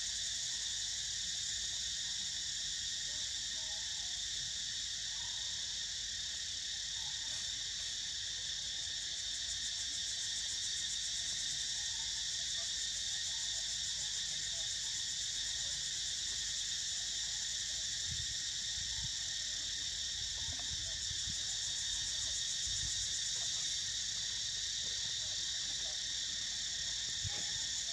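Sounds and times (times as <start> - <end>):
forest insects buzzing drone: 5.8 - 27.9.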